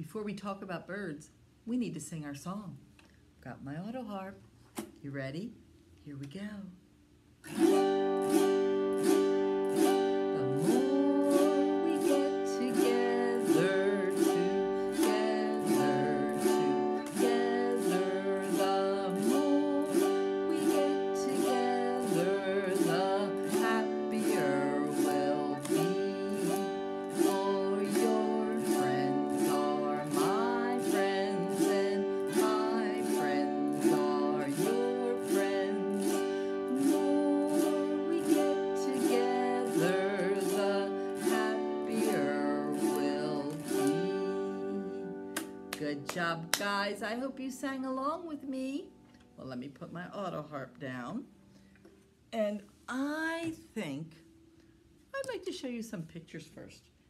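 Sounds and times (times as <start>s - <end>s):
autoharp strumming: 7.4s - 49.4s
woman singing: 7.6s - 48.9s.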